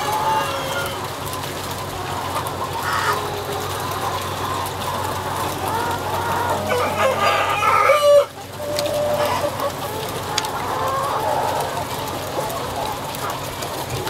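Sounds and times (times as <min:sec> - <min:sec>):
chickens clucking: 0:00.0 - 0:14.0
loud drawn-out chicken call: 0:05.7 - 0:09.6.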